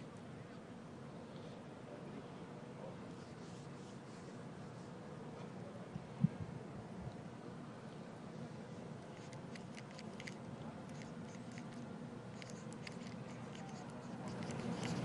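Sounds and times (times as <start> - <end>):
steady low hum: 0.0 - 15.0
marker scratching on steel: 9.2 - 15.0.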